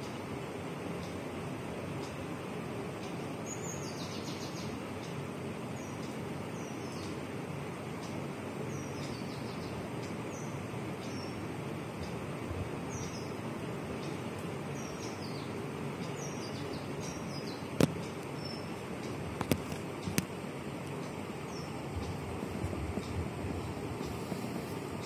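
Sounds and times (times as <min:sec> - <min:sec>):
city background hum: 0:00.0 - 0:25.0
sparrows chirping: 0:00.0 - 0:25.0
sharp clicks: 0:19.0 - 0:21.2.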